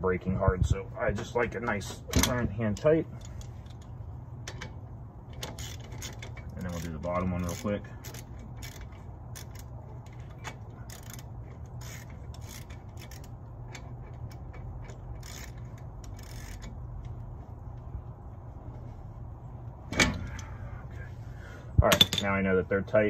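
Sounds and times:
wrench clicking and scraping: 1.2s - 17.8s.

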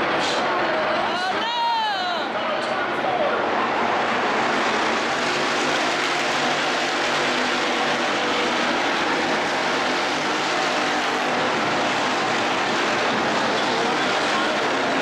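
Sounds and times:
race car engines roaring: 0.0s - 15.0s.

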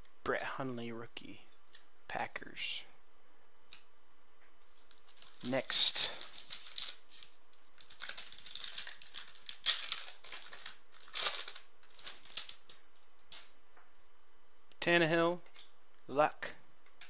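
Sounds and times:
foil wrapper tearing and crinkling: 4.8s - 13.5s.

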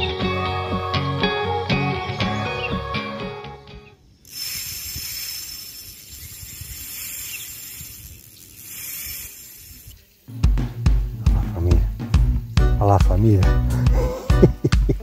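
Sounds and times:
steady hiss: 4.0s - 15.0s.

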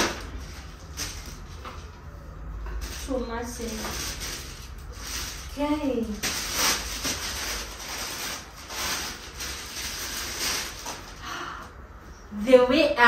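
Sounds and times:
packaging rustling and crinkling: 0.0s - 2.0s, 2.7s - 11.2s.

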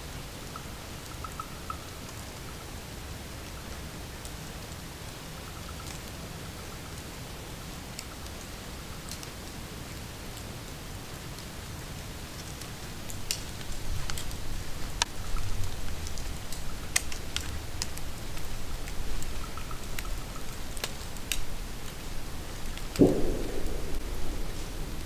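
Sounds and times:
sharp light ticks: 0.4s - 2.6s, 5.4s - 6.2s, 12.4s - 25.0s
gusty wind buffeting microphone: 23.0s - 25.0s.

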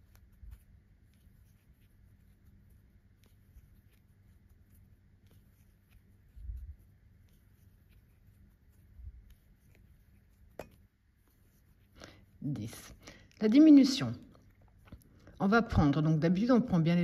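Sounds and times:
crochet hook rubbing and clicking: 0.0s - 13.0s.

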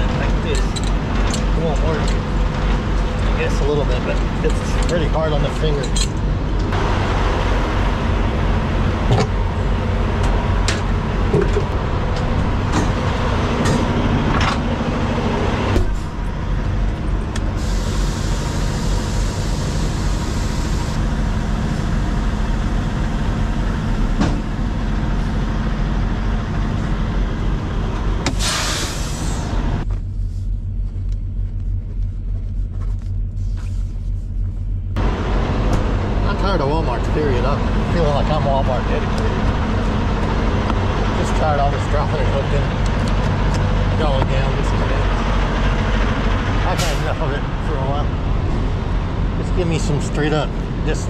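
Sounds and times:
diesel truck engine idling: 0.0s - 29.8s, 34.8s - 51.0s
air hiss: 28.3s - 29.5s.

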